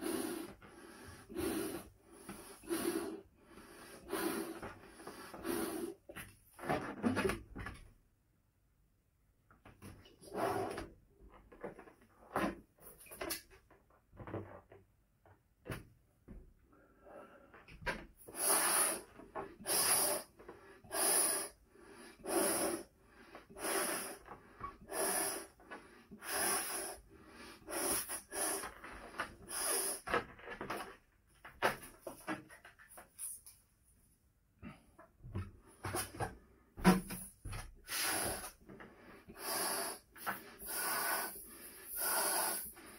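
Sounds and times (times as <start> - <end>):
breaths blown into balloon: 0.0 - 6.1, 18.2 - 30.2, 37.2 - 42.9.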